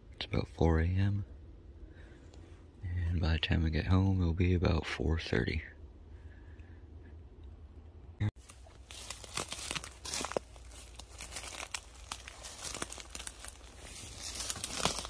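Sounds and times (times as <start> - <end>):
footsteps through dry leaves: 8.4 - 15.0.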